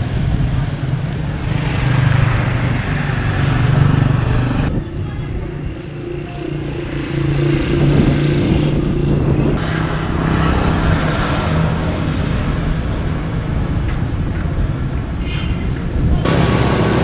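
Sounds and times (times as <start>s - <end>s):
motor vehicle engine running: 0.0s - 4.8s, 16.2s - 17.0s
rushing noise: 16.2s - 17.0s.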